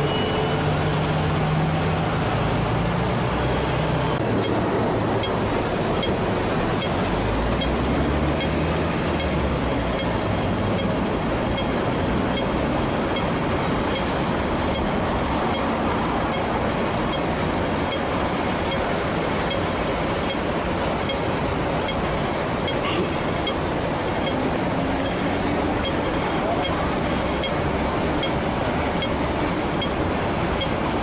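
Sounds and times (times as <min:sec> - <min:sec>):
faint high ticking: 0:00.0 - 0:04.6
street traffic noise: 0:00.0 - 0:31.0
tram wheels rolling on rails: 0:00.0 - 0:31.0.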